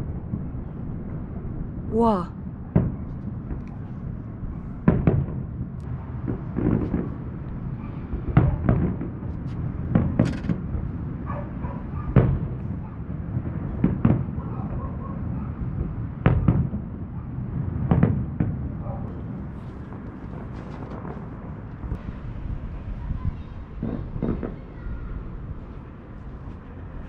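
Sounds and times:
fireworks booming: 4.8s - 11.2s, 12.2s - 26.0s.

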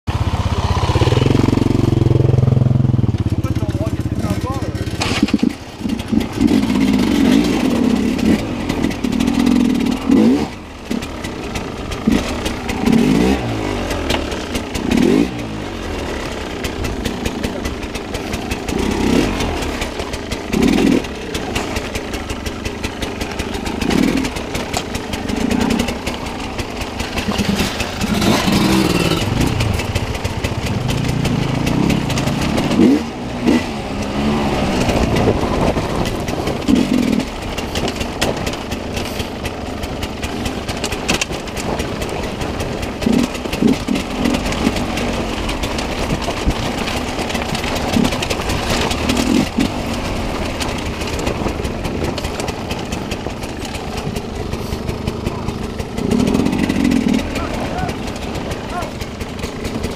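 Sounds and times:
dirt bike engine revving: 0.1s - 59.9s
rough rattling noise: 0.2s - 59.9s.

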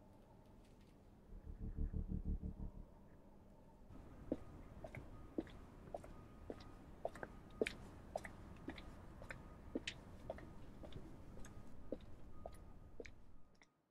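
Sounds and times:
low steady hum: 1.3s - 7.7s.

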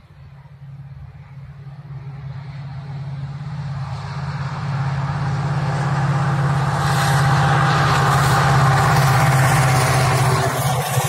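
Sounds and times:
diesel locomotive engine drone: 0.0s - 11.0s
rushing noise: 3.1s - 11.0s.

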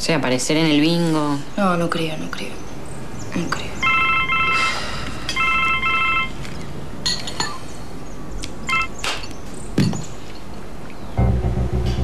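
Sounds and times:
phone keypad beeps: 3.8s - 4.7s, 5.4s - 6.4s, 8.7s - 9.0s.

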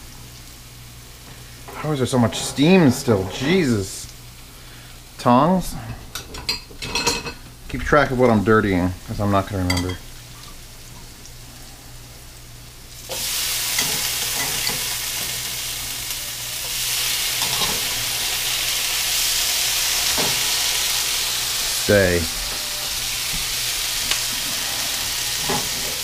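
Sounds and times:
food sizzling in a pan: 0.0s - 26.0s
utensils clicking against pan: 13.8s - 15.4s.

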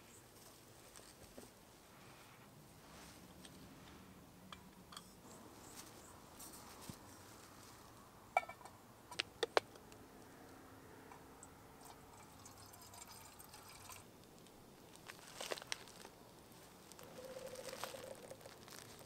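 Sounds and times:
water pouring into a mug: 11.8s - 14.1s
foil pouch crinkling: 14.9s - 19.0s.

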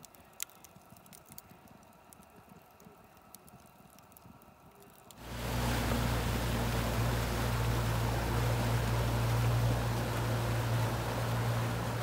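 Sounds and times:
small pops from burning log: 0.0s - 5.2s
wood fire crackling: 0.0s - 12.0s.

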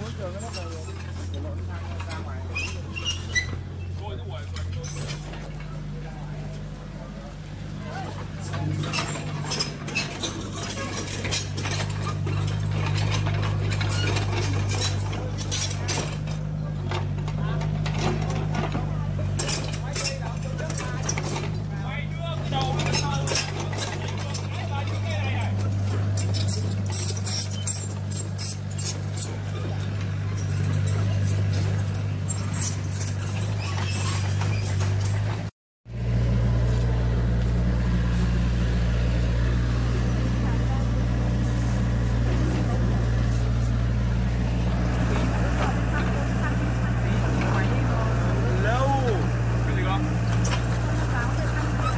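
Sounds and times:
clicks and rattles: 8.0s - 21.8s, 22.4s - 35.5s
toy excavator motors whirring: 8.0s - 35.5s.

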